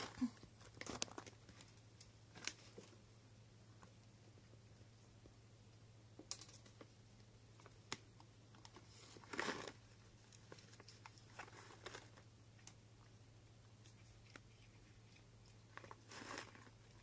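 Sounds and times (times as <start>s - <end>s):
cat crunching dry treats: 8.6s - 12.8s, 13.8s - 17.0s.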